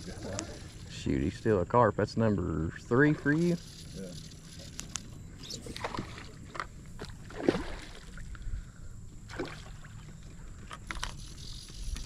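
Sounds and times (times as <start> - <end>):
low steady rumble: 0.0 - 12.0
fish splashing in water: 5.6 - 8.3, 9.3 - 10.1.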